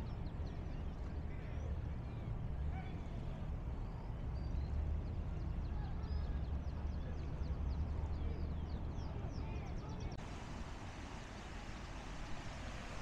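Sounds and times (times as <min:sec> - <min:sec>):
small birds twittering: 0:00.0 - 0:10.2.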